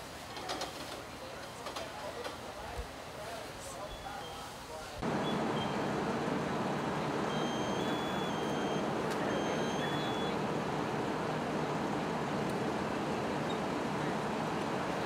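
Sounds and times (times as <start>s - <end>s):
fire engine drone: 5.0s - 15.0s.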